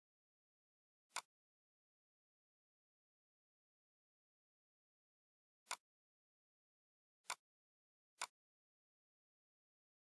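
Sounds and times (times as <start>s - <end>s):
computer mouse click: 1.1s - 1.3s.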